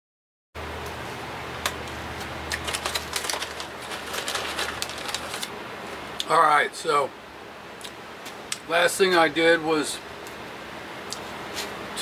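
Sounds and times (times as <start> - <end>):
steady low hum: 0.6 - 12.0
plastic bag crinkling: 2.5 - 5.5.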